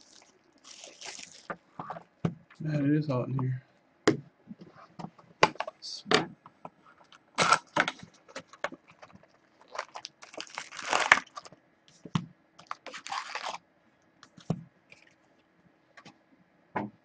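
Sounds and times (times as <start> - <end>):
foil packs rustling: 0.0 - 1.5, 7.4 - 11.6, 12.6 - 13.6
cardboard box tearing: 12.8 - 13.6.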